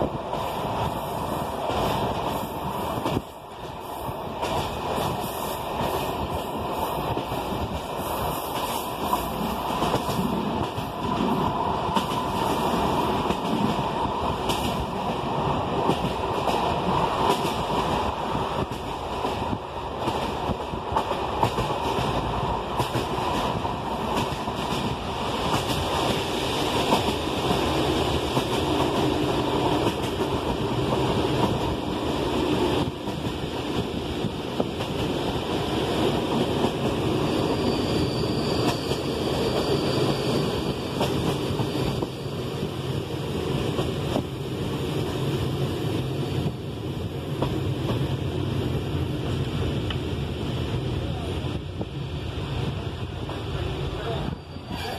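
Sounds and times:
train running noise: 0.0 - 54.9.

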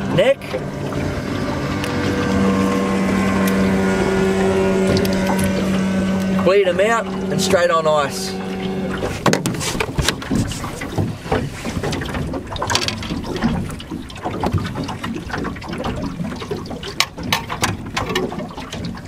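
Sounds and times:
waves lapping against boat hull: 0.0 - 19.0
sharp knocks: 8.5 - 12.0.

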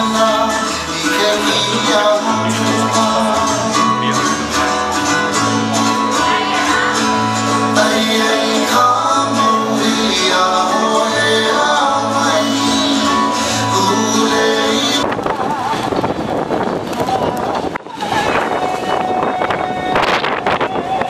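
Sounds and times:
person singing: 0.0 - 15.8
bass line: 0.0 - 21.0
plucked guitar: 0.0 - 21.0.

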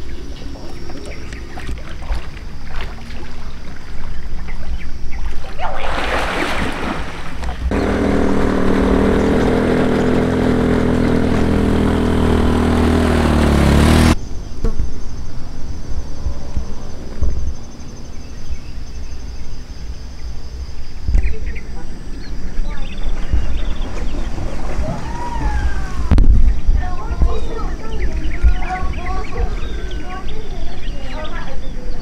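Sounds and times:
motorcycle engine running: 7.7 - 14.2
low wind rumble: 20.8 - 32.0.

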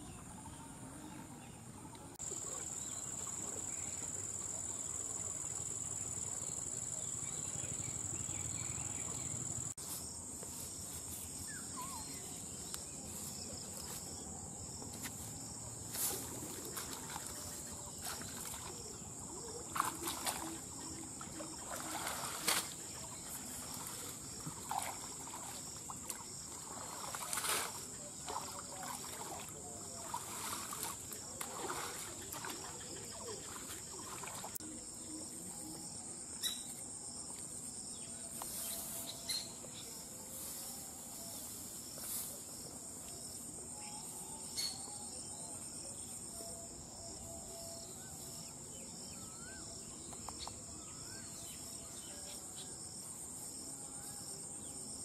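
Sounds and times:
insects buzzing: 2.2 - 55.0
grass rustling: 9.6 - 18.8
water splashing: 16.1 - 34.6.

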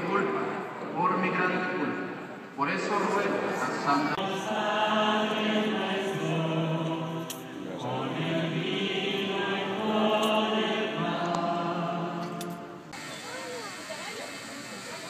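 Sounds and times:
congregation singing: 2.9 - 13.0.

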